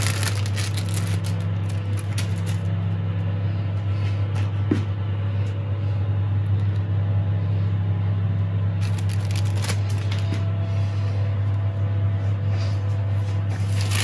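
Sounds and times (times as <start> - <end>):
plastic wrap crinkling: 0.0 - 2.8, 8.8 - 10.4, 13.6 - 14.0
kitchen appliance humming: 0.0 - 14.0.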